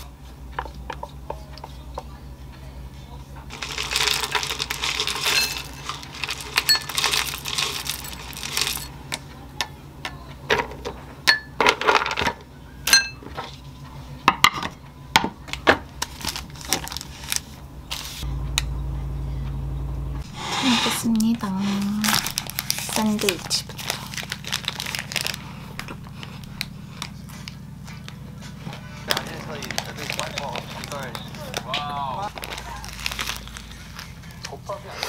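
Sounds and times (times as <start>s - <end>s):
steady low hum: 0.0s - 35.0s
almonds clinking in glass bowl: 3.5s - 8.9s
granola rattling into glass bowl: 3.5s - 8.9s.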